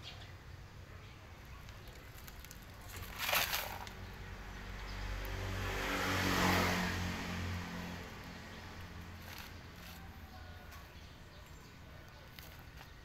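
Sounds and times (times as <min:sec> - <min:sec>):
brief rustling: 0:01.6 - 0:04.0, 0:12.2 - 0:13.0
motor vehicle passing by: 0:02.1 - 0:11.8.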